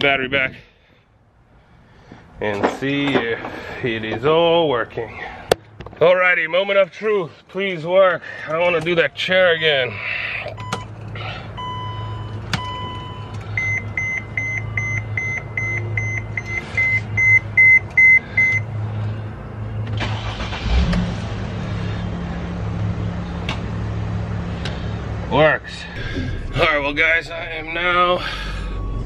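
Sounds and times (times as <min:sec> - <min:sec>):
dashboard warning chime beeping: 0:11.6 - 0:18.7
engine cranking and idling: 0:19.8 - 0:23.8, 0:25.9 - 0:29.0.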